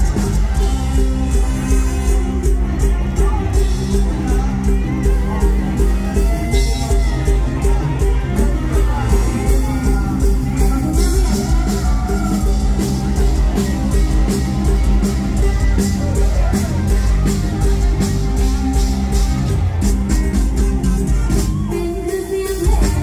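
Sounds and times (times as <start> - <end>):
live band music with heavy bass: 0.0 - 23.0
steady drum beat: 0.0 - 23.0.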